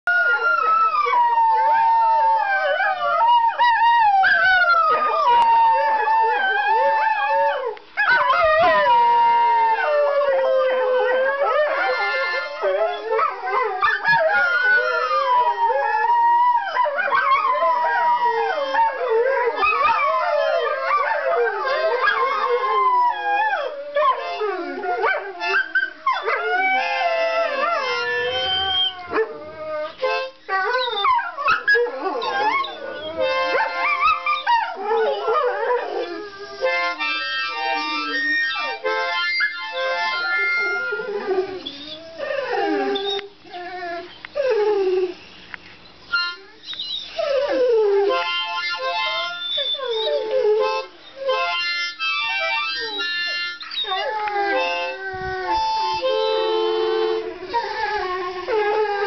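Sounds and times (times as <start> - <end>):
dogs howling: 0.1 - 45.2, 46.3 - 59.0
harmonica playing chords: 11.8 - 12.9, 24.2 - 24.8, 26.8 - 28.6, 30.0 - 30.5, 33.0 - 34.4, 36.6 - 41.0, 46.1 - 46.6, 48.0 - 53.8, 54.4 - 57.4.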